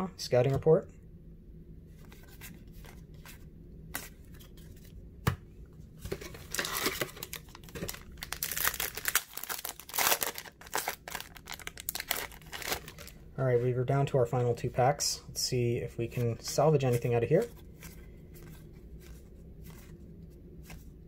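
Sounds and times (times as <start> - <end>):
foil wrapper crinkling and tearing: 6.4 - 13.2.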